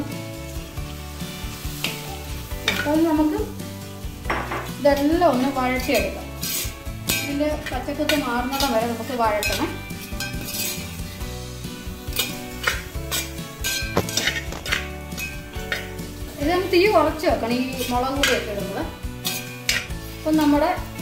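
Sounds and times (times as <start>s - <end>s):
frying sizzle: 0.0s - 21.0s
singing with music: 0.0s - 21.0s
spoon scraping metal pot: 5.4s - 11.1s, 12.1s - 16.0s, 19.2s - 20.2s
spoon clinking against pot: 19.2s - 19.9s.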